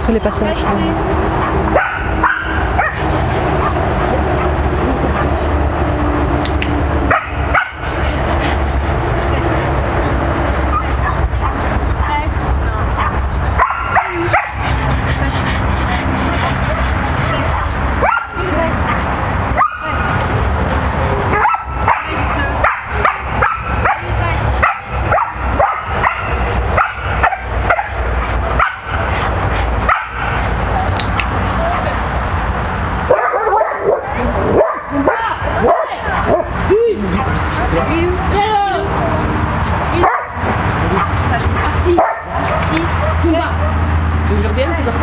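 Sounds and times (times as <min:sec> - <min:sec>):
steady low rumble: 0:00.0 - 0:43.1
dog barking: 0:00.6 - 0:04.6, 0:07.1 - 0:07.9, 0:13.0 - 0:14.8, 0:17.6 - 0:20.1, 0:21.3 - 0:29.2, 0:29.8 - 0:30.5, 0:33.1 - 0:36.6, 0:40.0 - 0:40.4, 0:41.9 - 0:43.8.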